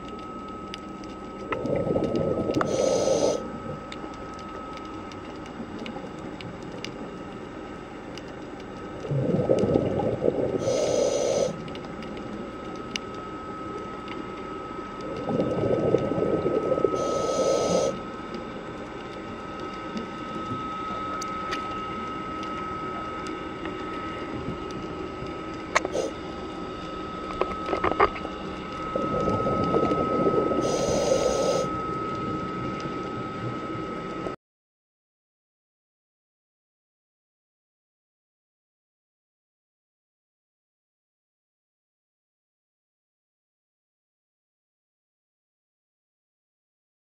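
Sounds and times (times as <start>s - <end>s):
steady high hum: 0.0s - 34.4s
regulator bubbling exhalation: 9.0s - 11.6s.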